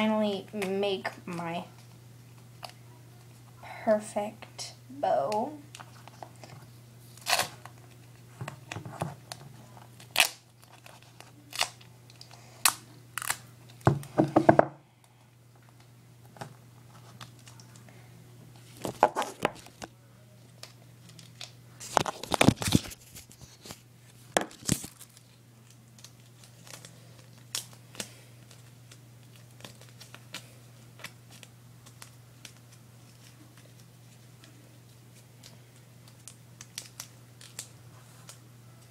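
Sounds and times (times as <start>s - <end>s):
steady low hum: 0.0s - 38.9s
duct tape ripping: 7.2s - 7.9s, 10.0s - 13.4s, 24.5s - 25.3s.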